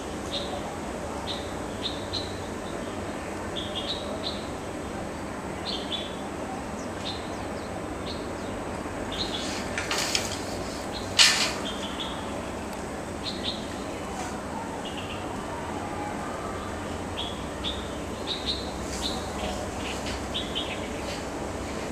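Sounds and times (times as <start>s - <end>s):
steady background hiss: 0.0s - 21.9s
rustle: 5.6s - 15.6s, 16.5s - 21.9s.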